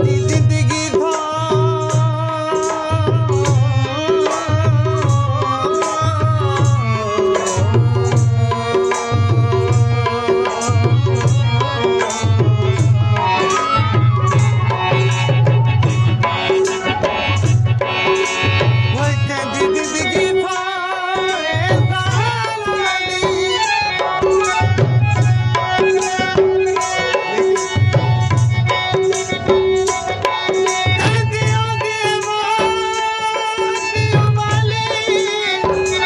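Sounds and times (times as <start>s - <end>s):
harmonium chords: 0.0s - 36.0s
tabla rhythm: 0.0s - 36.0s
bamboo flute melody: 13.1s - 17.4s.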